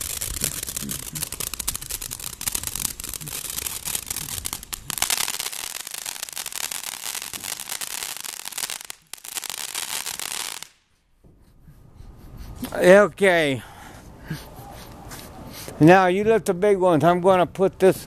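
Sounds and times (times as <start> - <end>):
firework fountain hissing crackle: 0.0 - 10.9.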